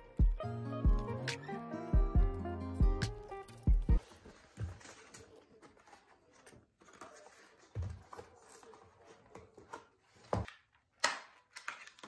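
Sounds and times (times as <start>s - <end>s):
fibre trays rustling: 4.0s - 12.0s.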